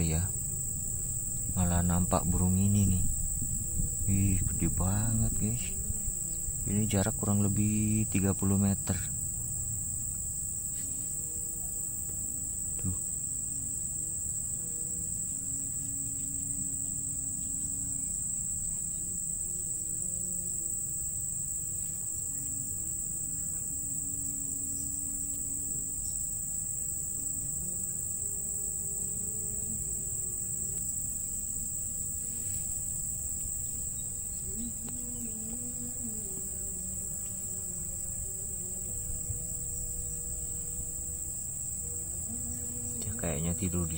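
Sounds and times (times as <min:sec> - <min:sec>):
low rumble: 0:00.0 - 0:10.6
insect chorus droning: 0:00.0 - 0:43.9.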